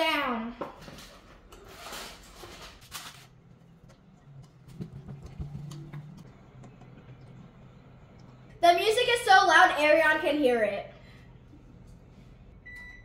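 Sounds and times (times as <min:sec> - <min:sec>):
aluminium foil crinkling: 0:01.7 - 0:03.4.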